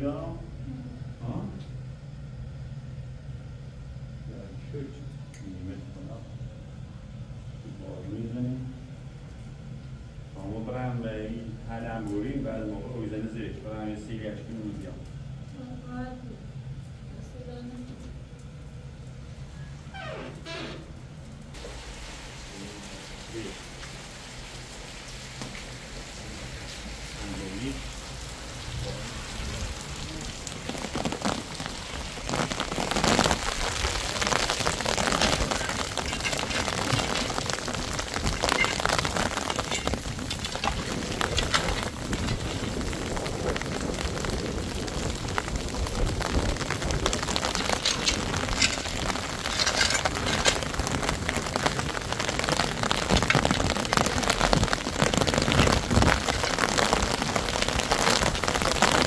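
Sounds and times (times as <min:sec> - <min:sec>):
steady rain on wet ground: 0:06.8 - 0:59.0
wood and rubble knocking: 0:32.2 - 0:44.0, 0:46.0 - 0:59.0.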